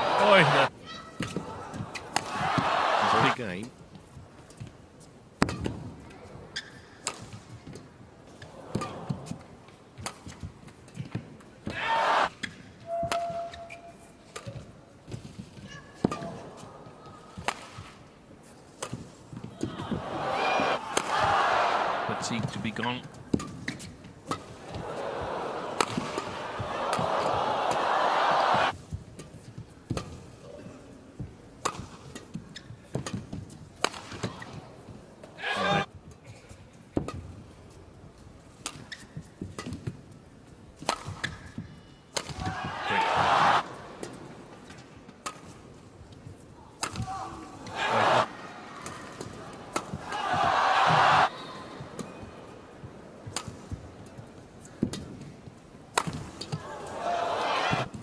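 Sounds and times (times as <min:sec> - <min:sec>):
rackets hitting shuttlecock: 0:05.4 - 0:07.8, 0:12.4 - 0:13.7, 0:25.7 - 0:27.9, 0:31.6 - 0:34.5, 0:38.6 - 0:40.0, 0:40.8 - 0:44.2, 0:46.8 - 0:51.3, 0:53.2 - 0:53.8, 0:55.9 - 0:56.6
court shoes squeaking: 0:06.5 - 0:07.8, 0:12.4 - 0:16.4, 0:32.1 - 0:33.4, 0:38.6 - 0:39.9.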